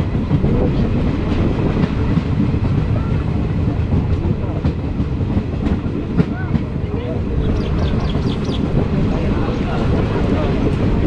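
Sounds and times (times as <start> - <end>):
train coach rumbling: 0.0 - 11.0
train wheels clicking: 3.7 - 11.0.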